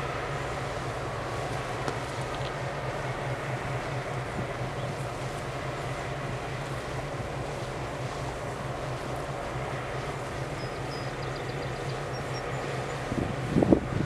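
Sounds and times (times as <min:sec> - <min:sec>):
diesel locomotive idling: 0:00.0 - 0:14.0
wind noise on microphone: 0:13.0 - 0:14.0.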